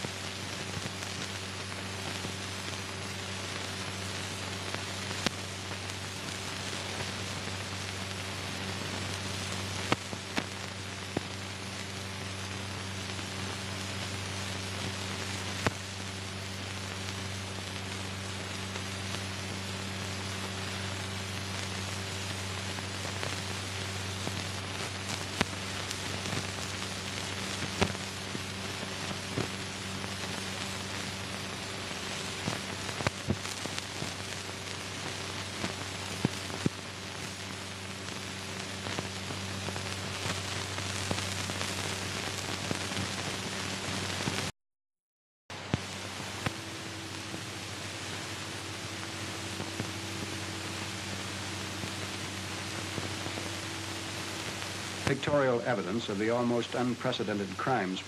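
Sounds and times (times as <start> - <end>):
film soundtrack hiss and hum: 0.0 - 44.5, 45.5 - 58.0
sharp clicks and pops: 27.5 - 28.1.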